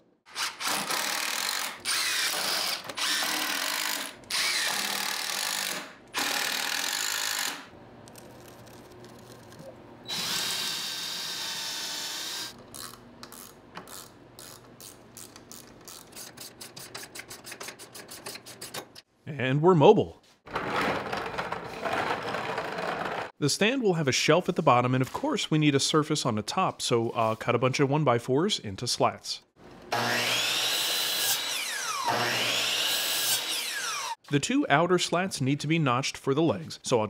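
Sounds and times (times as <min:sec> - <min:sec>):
power drill driving screws: 0:00.3 - 0:07.6, 0:10.1 - 0:12.6, 0:29.9 - 0:34.2.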